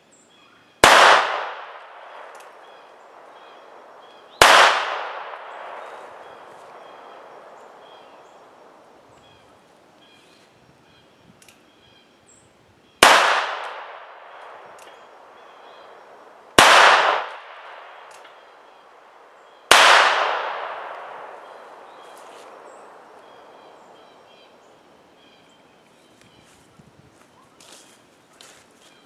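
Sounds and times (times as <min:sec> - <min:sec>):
revolver shots with echo: 0:16.6 - 0:18.4, 0:19.7 - 0:22.0.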